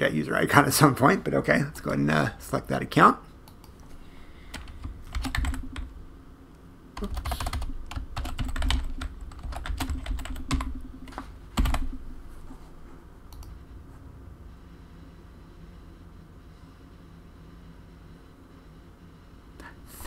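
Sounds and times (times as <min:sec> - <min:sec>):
computer keyboard typing: 0:04.5 - 0:06.0, 0:07.0 - 0:12.0, 0:13.3 - 0:13.6.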